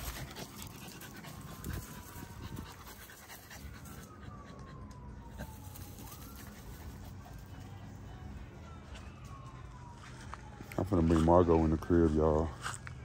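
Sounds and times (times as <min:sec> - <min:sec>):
dog panting: 0:00.0 - 0:05.6
siren wailing: 0:00.0 - 0:12.5.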